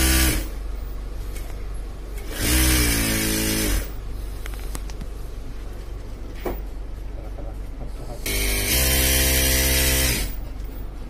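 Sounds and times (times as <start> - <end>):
industrial sewing machine running: 0.0 - 0.5, 2.3 - 4.0, 8.2 - 10.4.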